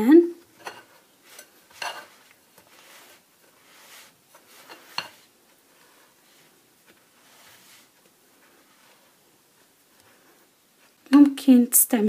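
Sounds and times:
spatula scraping flour in bowl: 0.6 - 9.2.

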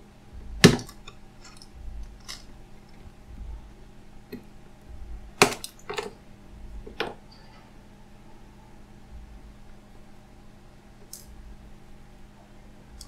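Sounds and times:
soft handling rumble: 0.3 - 7.8.

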